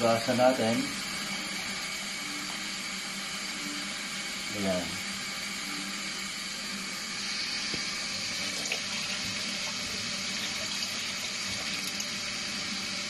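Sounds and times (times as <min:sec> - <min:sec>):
tap water running into a sink: 0:07.6 - 0:13.0.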